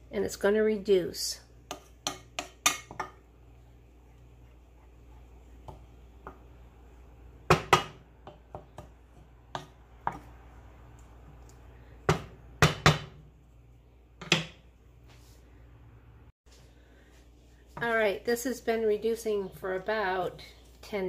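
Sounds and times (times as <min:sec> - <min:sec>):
wooden spoon knocking on pot: 0:01.7 - 0:03.2, 0:07.5 - 0:10.3.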